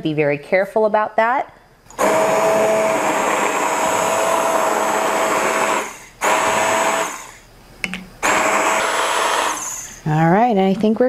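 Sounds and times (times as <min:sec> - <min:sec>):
immersion blender running: 0:01.9 - 0:07.4, 0:08.2 - 0:10.0.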